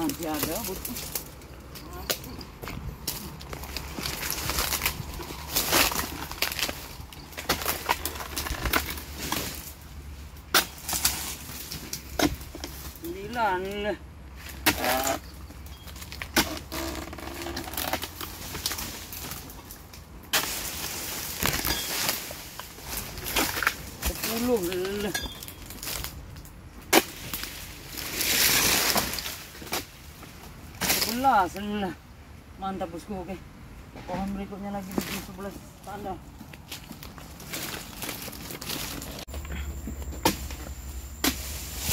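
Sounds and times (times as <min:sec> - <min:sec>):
fronds rustling: 0:00.0 - 0:41.9
chisel chopping palm fronds: 0:03.1 - 0:09.8, 0:10.5 - 0:13.3, 0:14.4 - 0:15.2, 0:20.3 - 0:26.1, 0:26.9 - 0:30.0, 0:30.8 - 0:31.7, 0:40.1 - 0:41.9.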